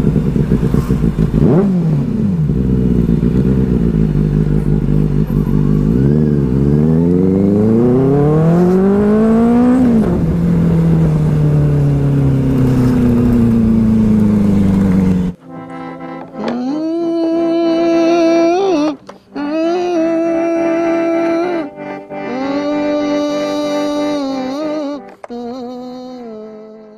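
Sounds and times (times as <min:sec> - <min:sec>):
motorcycle engine revving: 0:00.0 - 0:16.7.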